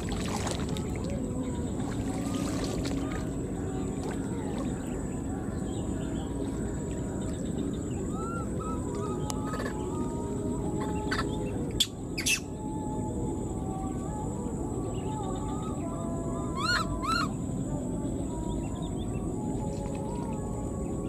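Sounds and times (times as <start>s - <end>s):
infant monkey high calls: 11.8s - 12.4s, 16.6s - 17.3s.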